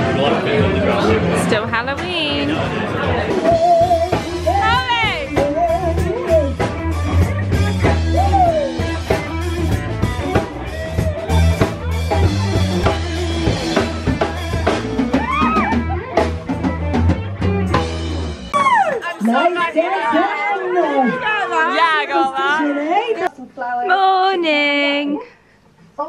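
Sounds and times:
drum kit: 0.0 - 19.1
bass: 0.0 - 19.2
guitar: 0.0 - 25.1
woman singing: 3.4 - 7.2.

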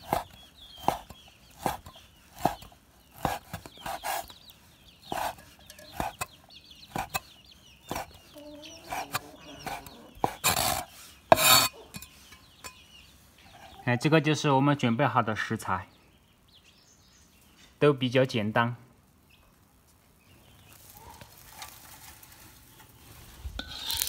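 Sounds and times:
cleaver chopping on wooden board: 0.0 - 4.3, 5.1 - 6.3, 6.9 - 7.3, 7.9 - 8.2.

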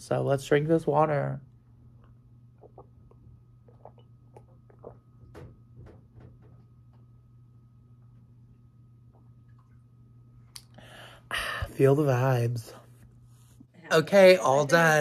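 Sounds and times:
person swallowing water: 2.3 - 5.5.

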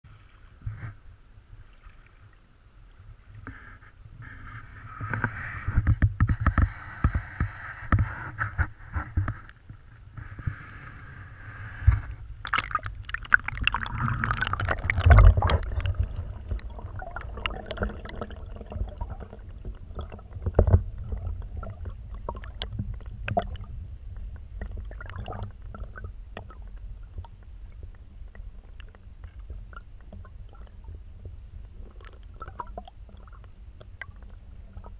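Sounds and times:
muffled underwater rumble: 0.1 - 34.9
underwater clicks and knocks: 5.0 - 9.8, 11.9 - 34.9
water splashing and gurgling: 12.4 - 34.9.

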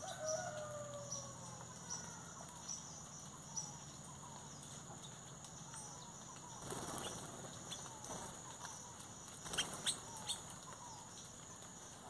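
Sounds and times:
faint bird chirps: 0.0 - 12.0
bird wings flapping: 6.6 - 10.8.

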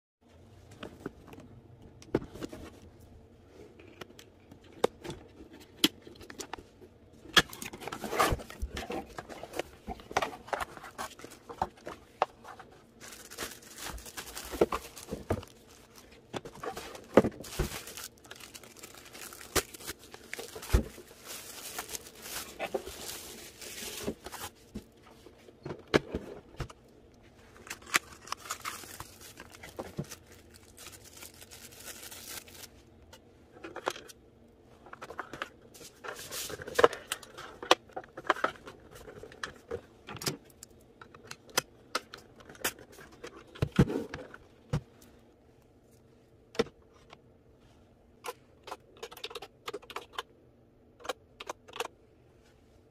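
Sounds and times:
plastic packaging crinkling: 7.5 - 24.7, 27.5 - 32.8.

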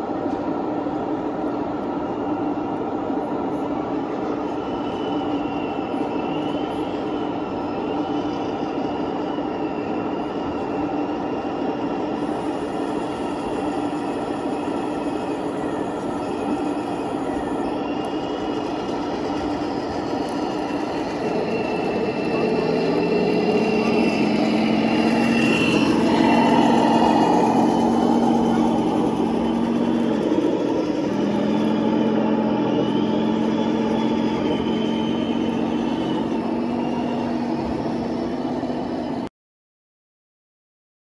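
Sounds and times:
faint high wavering whine: 0.0 - 39.3
toy tank mechanical drone: 10.2 - 39.3.

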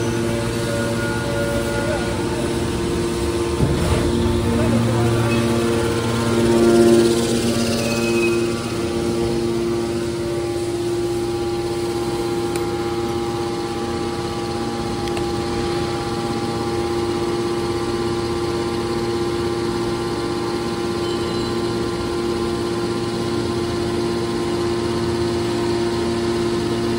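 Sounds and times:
electric motors humming: 0.0 - 21.0.

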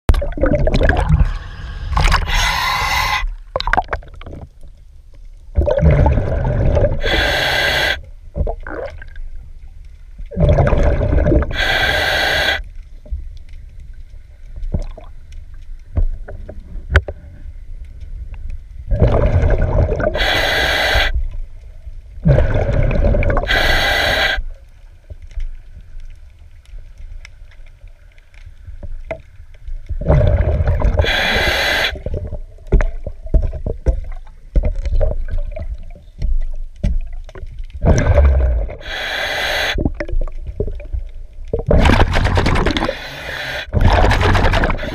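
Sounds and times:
exhaled bubbles burbling: 0.1 - 4.6, 5.5 - 7.3, 8.3 - 9.3, 10.3 - 11.6, 18.9 - 20.3, 22.2 - 23.6, 29.9 - 35.9, 37.0 - 39.0, 39.6 - 44.9
regulator air hiss: 1.4 - 3.3, 7.0 - 8.0, 11.5 - 12.6, 20.2 - 21.2, 23.4 - 24.4, 31.0 - 32.0, 38.8 - 39.8.

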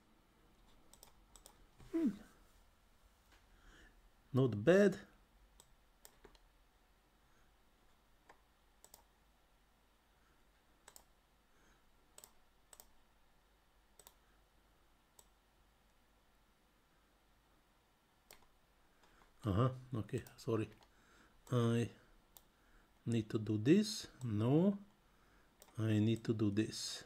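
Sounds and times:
faint computer mouse clicks: 0.9 - 1.6, 5.6 - 6.5, 8.2 - 9.1, 10.8 - 11.1, 12.1 - 13.0, 14.0 - 14.2, 18.3 - 19.3, 22.3 - 22.5, 25.6 - 26.3.

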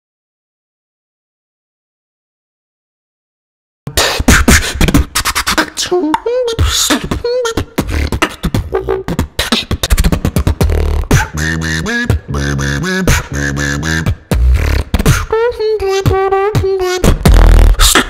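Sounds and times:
beatboxing into a microphone: 3.9 - 18.0.

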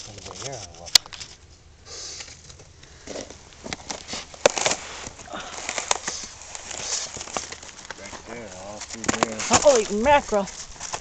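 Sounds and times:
footsteps on rocks and shells: 2.3 - 11.0.

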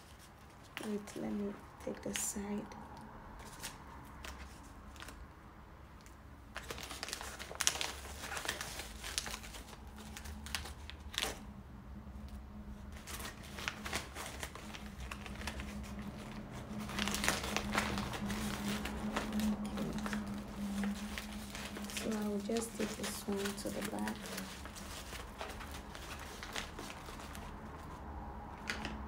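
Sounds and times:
stiff fabric rustling: 12.9 - 28.0.

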